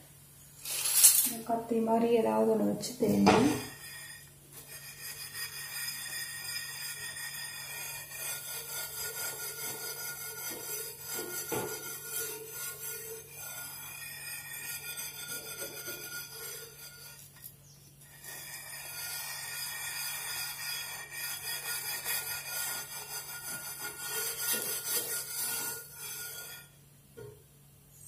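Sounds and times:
steel wool scraping iron pan: 2.8s - 26.8s.

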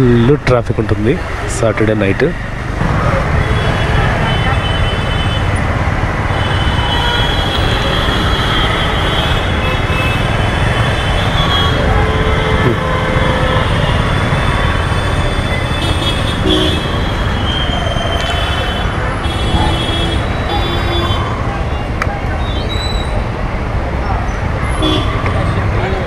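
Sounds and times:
rumble of traffic engines: 0.0s - 26.0s
vehicle horn: 6.3s - 17.3s, 18.4s - 21.3s, 24.7s - 25.6s.

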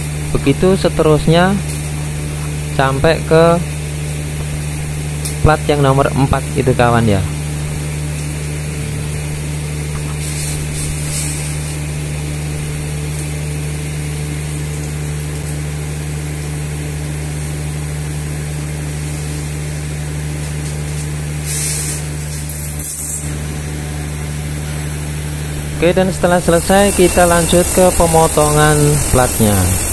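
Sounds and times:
low machine motor hum: 0.0s - 29.9s
high hissing scrapes: 10.2s - 11.8s, 21.4s - 22.1s, 26.3s - 29.9s.

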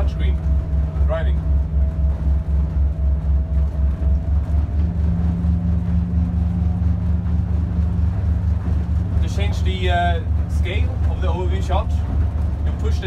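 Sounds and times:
motorboat engine droning: 0.0s - 13.0s.

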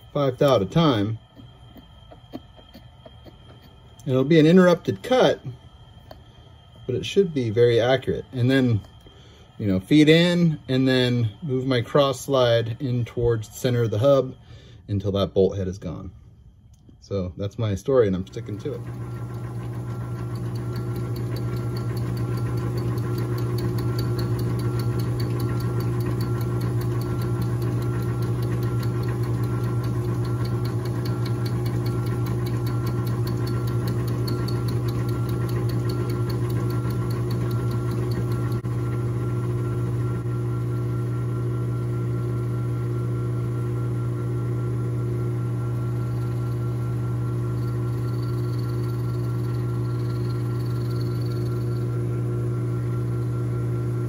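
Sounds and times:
metal lathe cutting with fast ticking: 18.3s - 40.2s, 45.0s - 53.6s.

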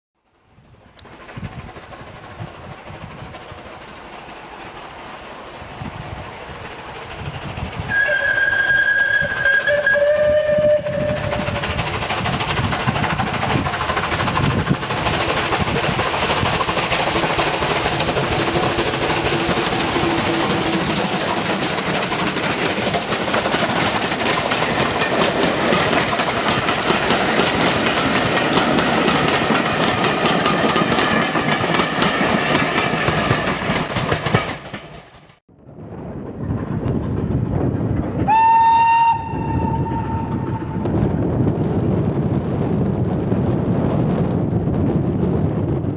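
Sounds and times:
train wheels clicking over rail joints: 0.6s - 35.4s, 36.2s - 44.0s
steam locomotive whistle: 7.9s - 11.8s, 38.2s - 41.0s.

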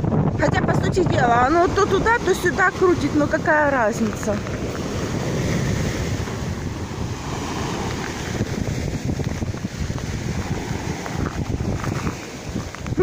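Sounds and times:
wind buffeting microphone: 0.0s - 13.0s
small sea waves breaking: 1.1s - 13.0s.

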